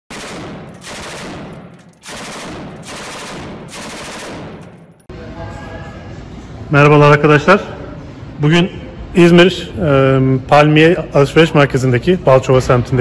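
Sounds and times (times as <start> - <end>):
rapid automatic gunfire: 0.1 - 4.8.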